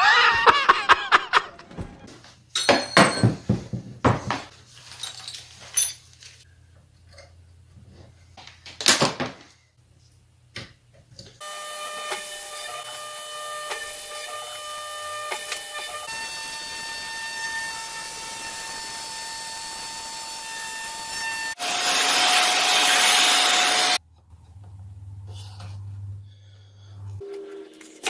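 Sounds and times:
router spindle milling whine: 0:11.4 - 0:24.0.

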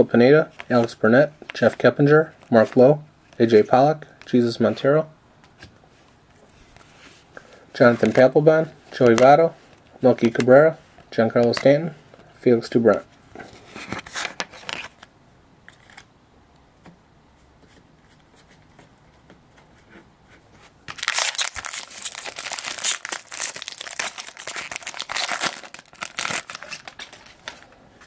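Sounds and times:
faint handling sounds: 0:00.4 - 0:15.1
foil wrapper tearing and crinkling: 0:20.9 - 0:27.6.

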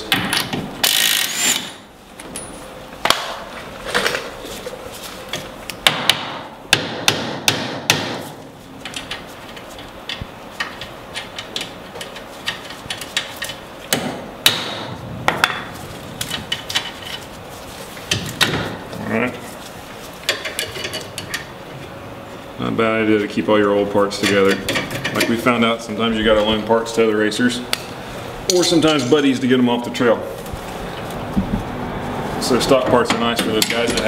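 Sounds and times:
impact wrench spinning: 0:00.8 - 0:01.8
metal knocks: 0:13.9 - 0:17.1.

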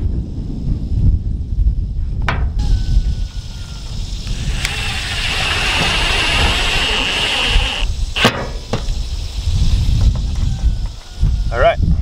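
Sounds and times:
power tool cutting metal: 0:04.2 - 0:08.5
sharp knocks: 0:04.6 - 0:09.0.

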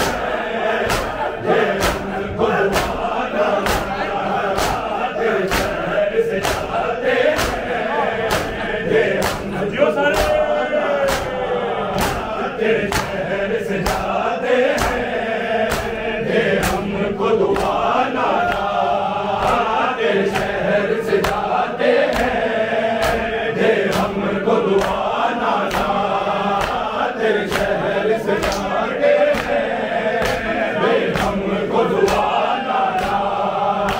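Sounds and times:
hands slapping chests: 0:00.0 - 0:33.9
men chanting in unison: 0:00.0 - 0:33.9.

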